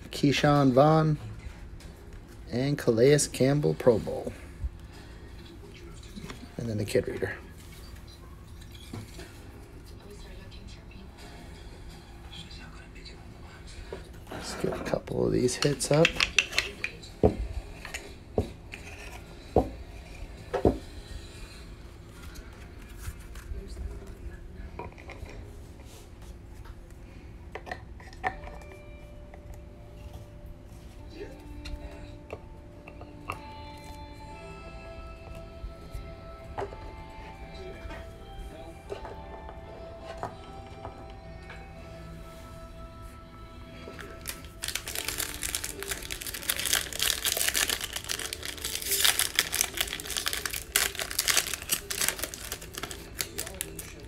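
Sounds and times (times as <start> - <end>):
soft background music: 0.0 - 54.0
foil wrapper crinkling: 44.0 - 54.0.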